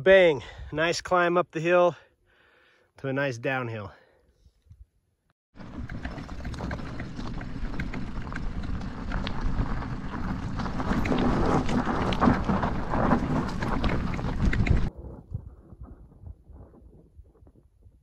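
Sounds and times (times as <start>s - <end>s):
bike rattles and knocks: 5.6s - 14.9s
tyres crunching on loose stones: 5.6s - 14.9s
wind buffeting microphone: 5.6s - 18.0s.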